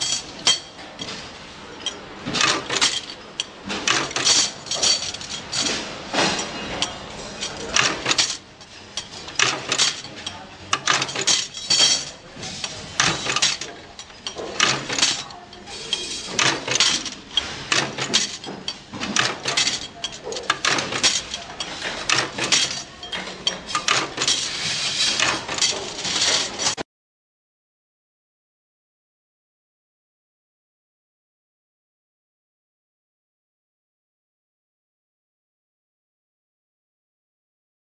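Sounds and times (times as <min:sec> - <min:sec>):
metal drawer slide rails clanking: 0:00.0 - 0:26.8.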